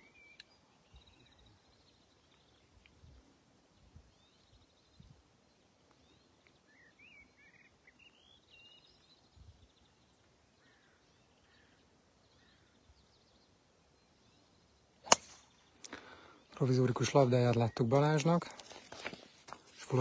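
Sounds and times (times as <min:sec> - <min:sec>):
small birds chirping: 0:00.0 - 0:20.0
golf driver striking ball: 0:15.0 - 0:15.5.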